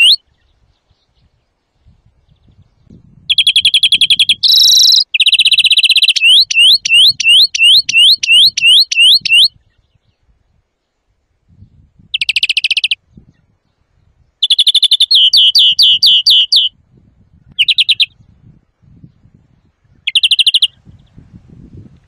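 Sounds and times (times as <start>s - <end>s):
finch singing: 0.0s - 1.3s, 2.3s - 10.2s, 12.1s - 13.5s, 14.4s - 16.7s, 17.5s - 18.2s, 20.0s - 21.1s.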